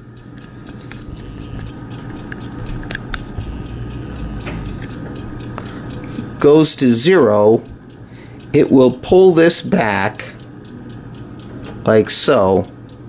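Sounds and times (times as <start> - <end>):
clock movements ticking rapidly: 0.1 - 13.0
low rumble: 2.6 - 5.7.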